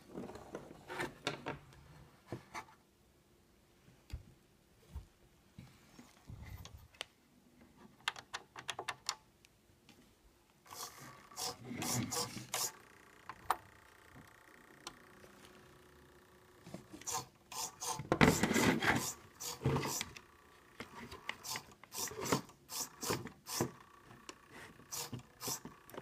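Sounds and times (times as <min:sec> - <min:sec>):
faint steady hum: 0:09.2 - 0:26.0.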